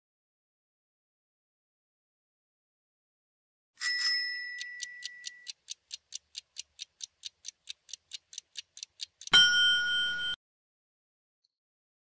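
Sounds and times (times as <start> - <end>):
timer ticking quickly: 3.8 - 10.4
start chime: 9.3 - 10.4.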